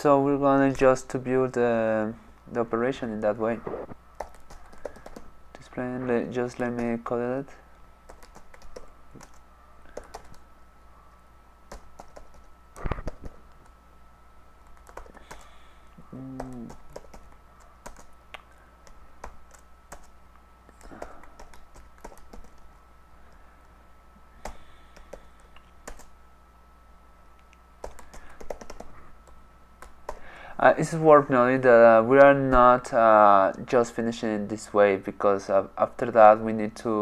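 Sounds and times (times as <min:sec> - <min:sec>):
typing on computer keyboard: 0:04.2 - 0:05.3, 0:08.1 - 0:10.4, 0:11.7 - 0:13.7, 0:14.7 - 0:15.5, 0:16.4 - 0:18.2, 0:18.8 - 0:20.1, 0:20.8 - 0:22.6, 0:25.8 - 0:26.1, 0:27.8 - 0:30.2.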